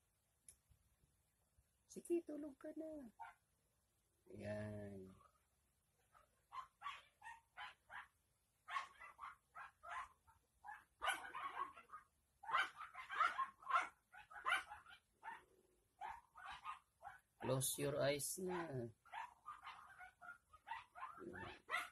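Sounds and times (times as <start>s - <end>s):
dog barking: 3.2s - 3.4s, 6.0s - 8.1s, 8.7s - 17.5s, 18.5s - 21.9s.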